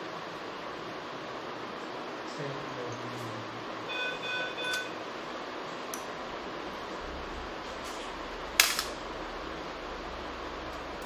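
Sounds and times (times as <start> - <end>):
short electronic beeps: 3.9 - 5.0.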